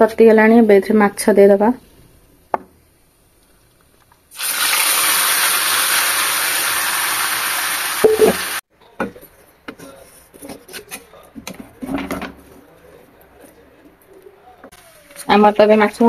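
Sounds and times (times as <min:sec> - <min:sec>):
fish sizzling in hot oil: 0:04.3 - 0:08.6.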